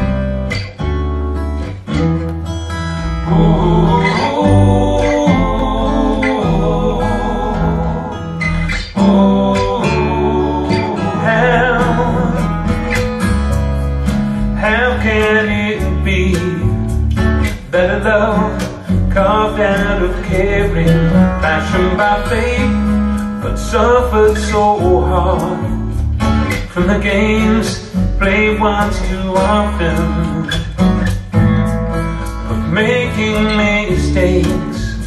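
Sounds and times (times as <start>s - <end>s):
guitar: 0.0s - 35.0s
steady bass line: 0.0s - 35.0s
song through loudspeakers: 2.0s - 35.0s
person singing: 3.1s - 13.1s, 14.4s - 16.9s, 17.5s - 22.8s, 23.4s - 25.9s, 26.6s - 30.7s, 32.7s - 35.0s.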